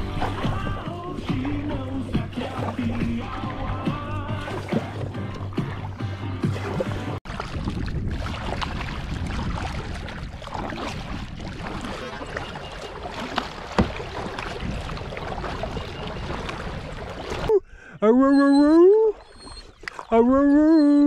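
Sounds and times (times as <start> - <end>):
wind rumble on microphone: 0.0 - 4.4, 7.3 - 12.7, 13.8 - 17.5
water splashing around kayak: 0.0 - 17.6, 18.9 - 20.3.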